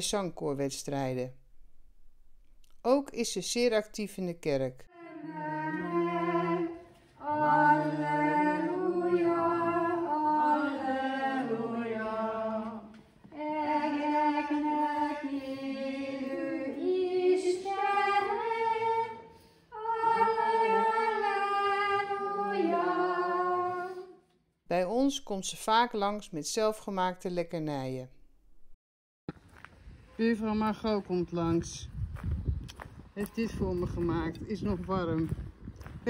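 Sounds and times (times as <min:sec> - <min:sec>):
women singing a hymn: 0:04.9 - 0:24.2.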